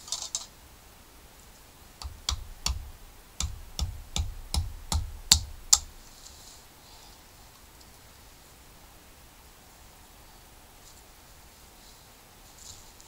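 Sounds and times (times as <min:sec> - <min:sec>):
sharp wooden knocks: 0:02.0 - 0:06.0.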